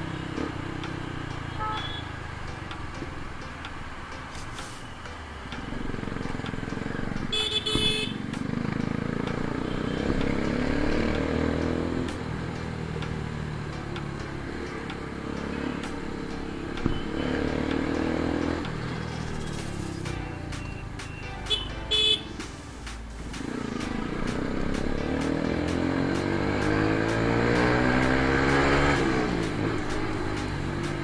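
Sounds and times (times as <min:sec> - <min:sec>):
motorcycle engine running: 0:00.0 - 0:03.7, 0:05.6 - 0:31.0
horn beep: 0:01.4 - 0:02.2, 0:07.2 - 0:08.2, 0:16.5 - 0:17.8, 0:19.4 - 0:22.4.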